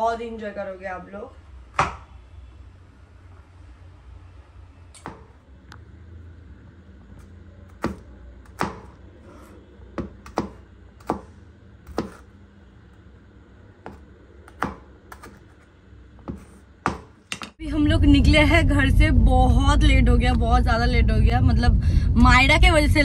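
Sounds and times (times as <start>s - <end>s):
knife chopping on wooden board: 1.8s - 2.1s, 7.7s - 11.3s, 11.9s - 12.3s, 13.8s - 15.6s, 16.2s - 17.6s.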